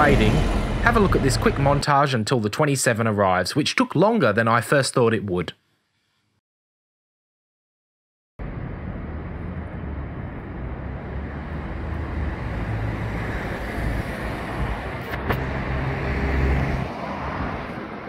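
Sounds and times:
road vehicles passing: 0:00.0 - 0:01.8, 0:08.4 - 0:18.0.

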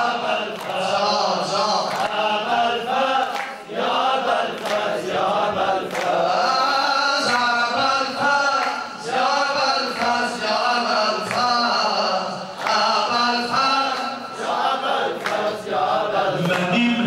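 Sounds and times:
man chanting into microphone: 0:00.0 - 0:02.9, 0:05.5 - 0:14.9, 0:15.5 - 0:17.0
group of men chanting: 0:00.0 - 0:17.0
slow hand claps: 0:00.5 - 0:00.9, 0:01.9 - 0:02.3, 0:03.1 - 0:08.9, 0:09.8 - 0:10.3, 0:12.6 - 0:16.8.

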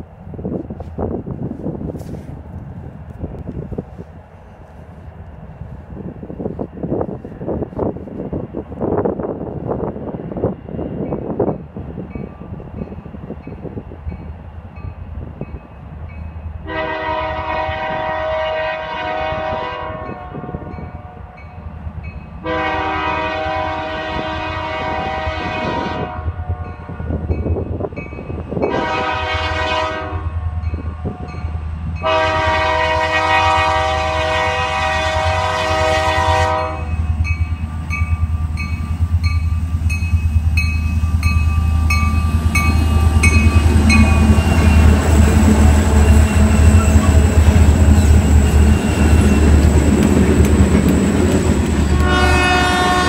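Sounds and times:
locomotive air horn blasts: 0:16.6 - 0:21.5, 0:22.4 - 0:27.2, 0:28.7 - 0:31.3, 0:32.0 - 0:37.1, 0:51.9 - 0:53.0
diesel engines rumbling: 0:37.0 - 0:53.0.

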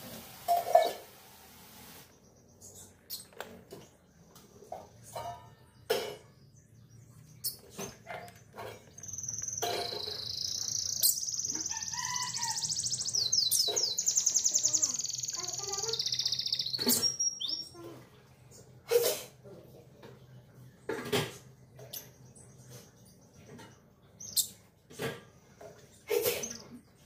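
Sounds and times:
canary singing: 0:06.8 - 0:17.8.

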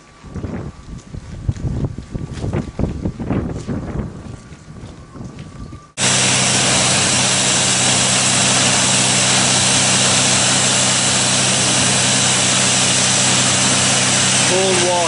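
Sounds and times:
pump engine humming: 0:06.0 - 0:15.0
water jet hissing: 0:06.0 - 0:15.0.

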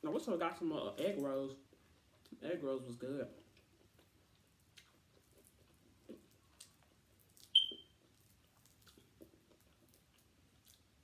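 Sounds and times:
fried chicken torn and chewed: 0:03.4 - 0:11.0.

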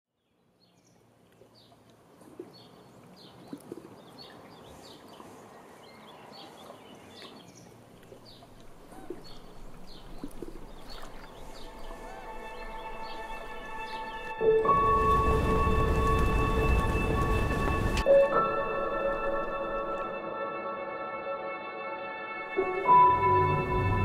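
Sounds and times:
small birds chirping: 0:00.2 - 0:14.3
soft outdoor ambience: 0:00.2 - 0:24.0
music with held notes: 0:11.6 - 0:24.0.

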